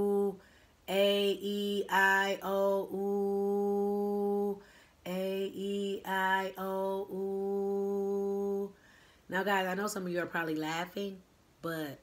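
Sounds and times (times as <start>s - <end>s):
woman chanting vowels: 0.0s - 8.7s.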